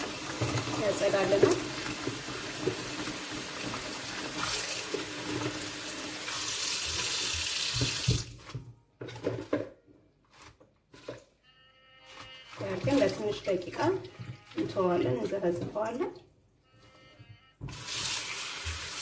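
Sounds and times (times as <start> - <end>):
wet leaves knocking and splashing: 6.6 - 9.7, 10.3 - 11.3, 12.1 - 16.0.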